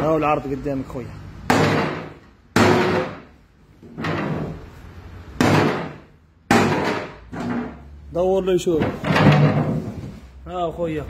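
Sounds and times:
sledgehammer striking plastic chair: 1.5 - 3.3, 5.4 - 7.8.

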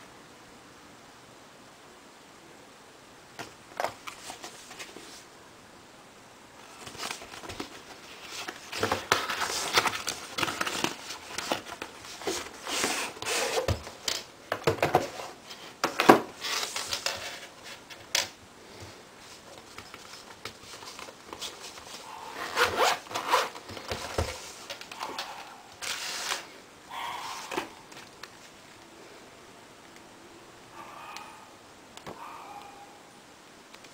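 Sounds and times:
cardboard and fabric rustling: 3.4 - 5.3, 6.6 - 26.6
zipper opening: 22.2 - 23.6.

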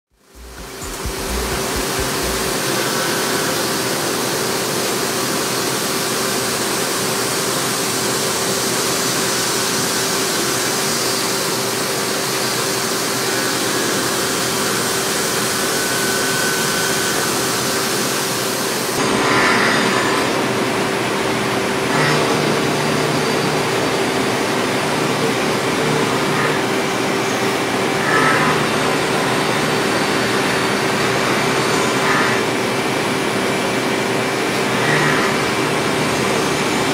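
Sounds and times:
milling machine cutting hiss: 0.2 - 6.4, 21.8 - 32.7, 34.5 - 36.9.

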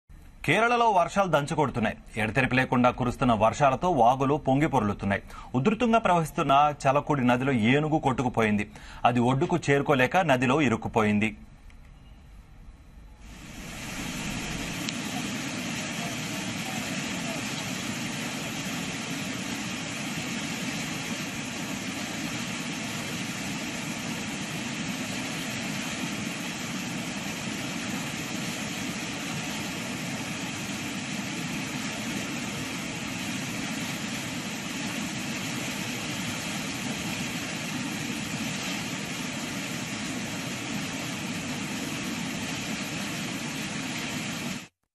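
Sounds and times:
river rushing: 13.2 - 44.7.

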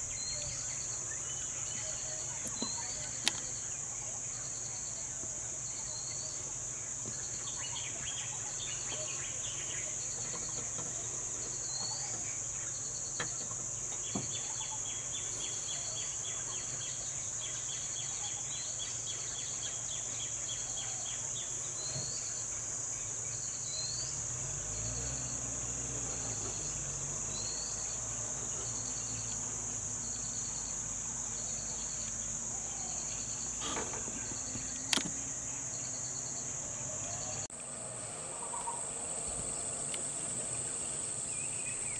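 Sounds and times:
bird calls: 0.0 - 4.4, 7.0 - 24.2, 31.3 - 41.9
insect chirping in pulses: 0.0 - 41.9
vehicle engine rumble: 23.1 - 41.9
sharp click: 34.9 - 35.2.

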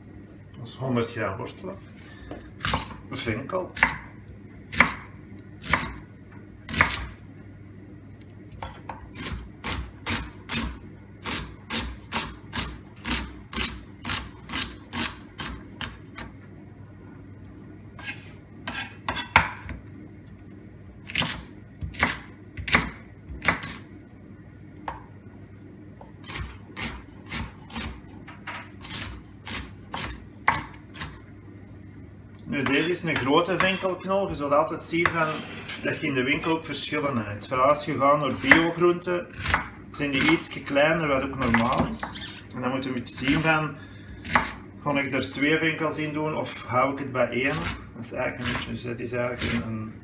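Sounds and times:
knife chopping on wooden board: 2.6 - 3.0, 3.8 - 4.1, 4.7 - 6.0, 6.7 - 7.2, 8.5 - 16.3, 18.0 - 19.8, 21.1 - 23.8, 26.0 - 31.2, 32.6 - 33.9, 38.3 - 40.5, 41.4 - 42.2, 44.2 - 44.6.

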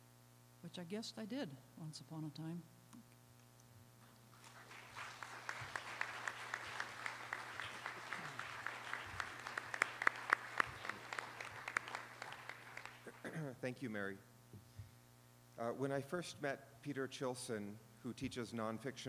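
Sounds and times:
audience clapping: 4.3 - 13.2.

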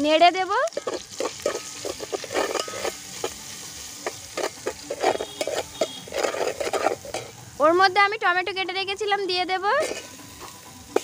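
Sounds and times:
oil sizzling: 0.0 - 11.0
metal spatula scraping pot: 0.6 - 7.4, 9.8 - 11.0.

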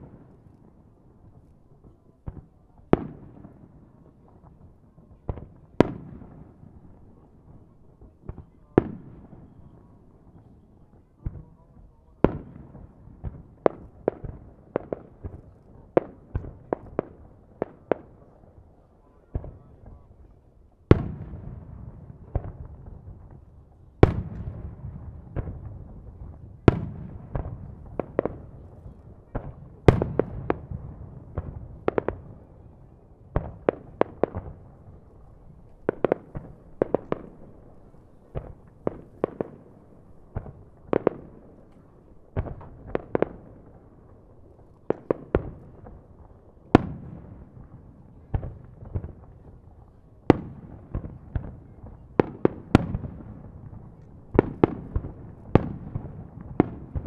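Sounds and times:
echoing fireworks booms: 0.0 - 57.0
fireworks bursting: 19.3 - 57.0.

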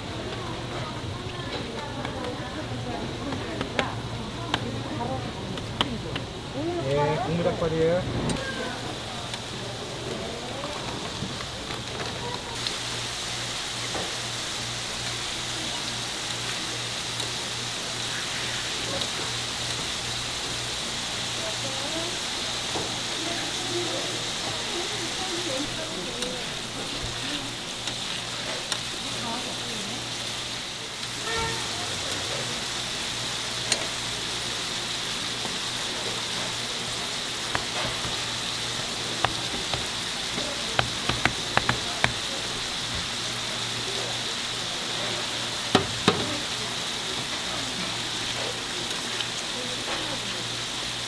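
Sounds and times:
patties sizzling on a griddle: 0.0 - 51.0.

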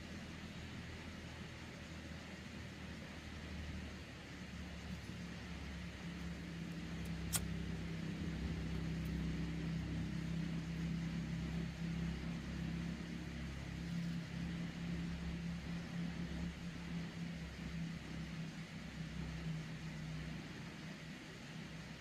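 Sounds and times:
low motor hum: 0.0 - 22.0
sharp click: 7.0 - 7.5.

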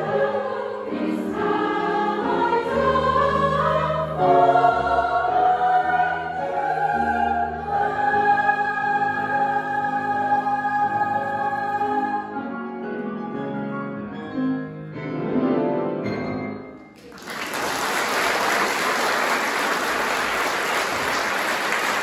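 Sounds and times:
choir singing held chord: 0.0 - 12.5
piano notes: 10.2 - 17.1
audience applause: 17.0 - 22.0.

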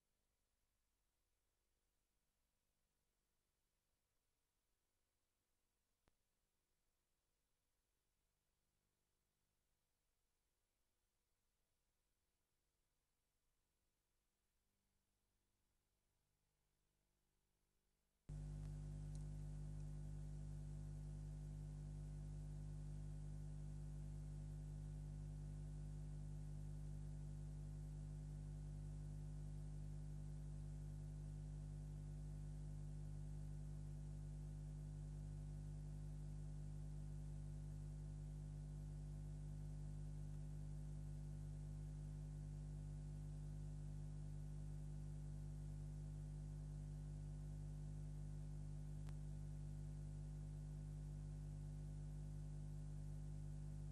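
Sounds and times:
electrical mains hum: 18.3 - 53.9.

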